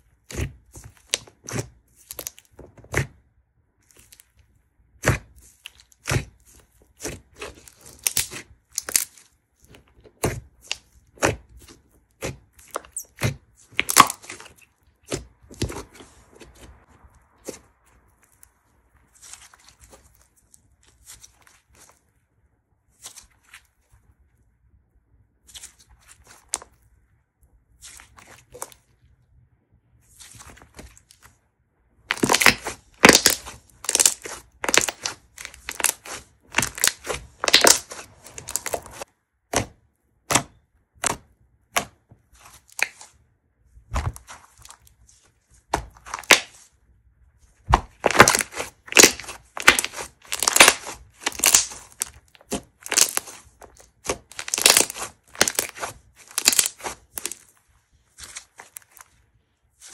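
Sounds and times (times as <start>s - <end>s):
slime crackling pops: 32.1s - 39.1s, 45.7s - 46.6s, 47.7s - 57.4s.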